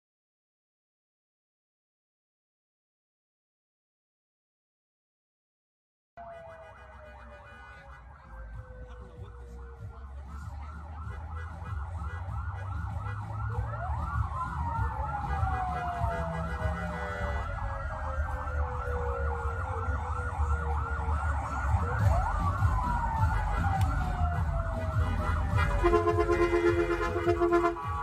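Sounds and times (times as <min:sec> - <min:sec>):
emergency sirens yelping and wailing: 0:06.2 - 0:28.0
low rumble of vehicle engines: 0:06.2 - 0:28.0.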